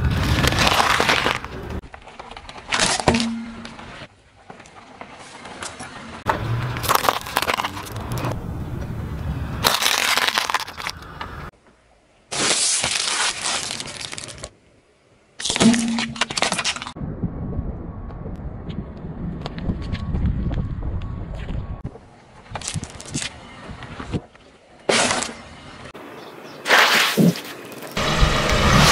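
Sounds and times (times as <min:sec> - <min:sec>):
crackling and crunching: 0:00.0 - 0:03.8, 0:06.3 - 0:08.4, 0:09.6 - 0:11.5, 0:12.3 - 0:14.6
tyre crushing hard candy: 0:06.7 - 0:08.2, 0:09.6 - 0:11.1.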